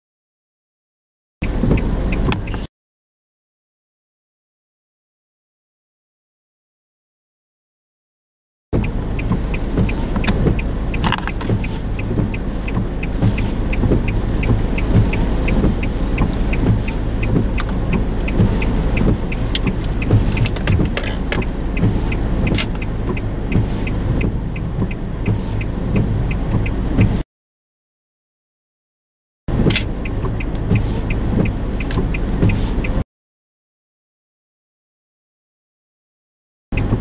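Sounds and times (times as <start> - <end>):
car driving on road: 1.4 - 2.7, 8.8 - 27.2, 29.5 - 33.0, 36.7 - 37.0
faint regular ticking: 8.8 - 27.2, 29.6 - 33.0.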